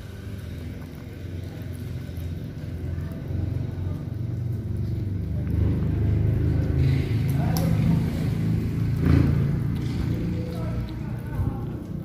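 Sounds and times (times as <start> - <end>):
vehicle engine rumble: 0.0 - 12.0.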